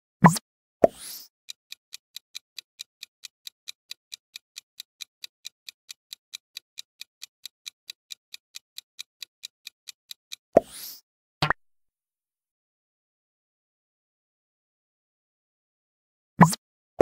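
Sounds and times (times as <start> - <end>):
clock ticking: 1.4 - 10.5.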